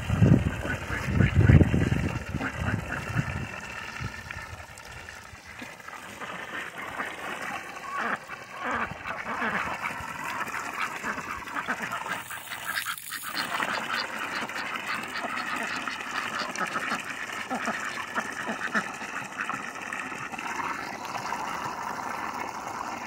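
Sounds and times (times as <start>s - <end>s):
ducks quacking: 0.4s - 4.0s, 5.6s - 19.8s.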